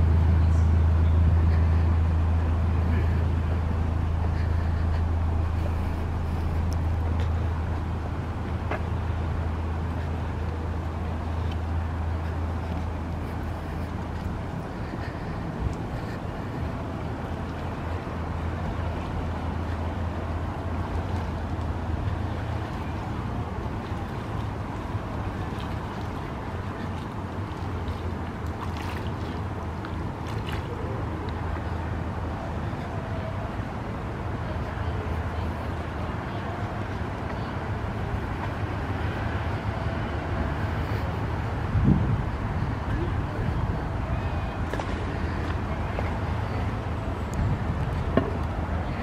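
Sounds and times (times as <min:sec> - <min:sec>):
engine idling: 0:00.0 - 0:28.6
outdoor background noise: 0:00.0 - 0:49.0.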